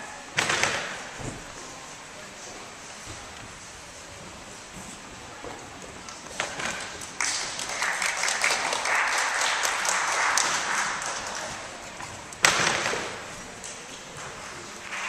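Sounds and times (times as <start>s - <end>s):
audience applauding: 7.0s - 12.1s, 14.5s - 15.0s.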